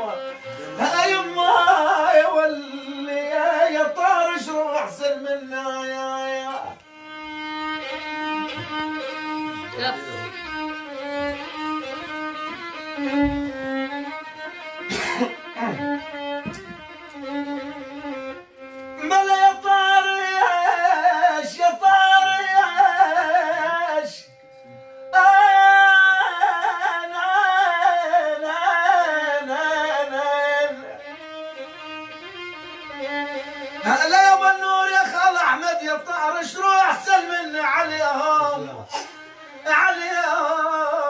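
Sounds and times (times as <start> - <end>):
violin playing slow folk melody: 0.0 - 41.0.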